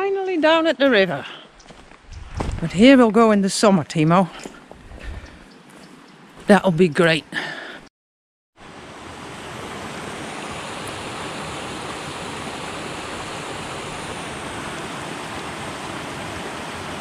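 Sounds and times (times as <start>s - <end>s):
river current rushing: 8.6s - 17.0s.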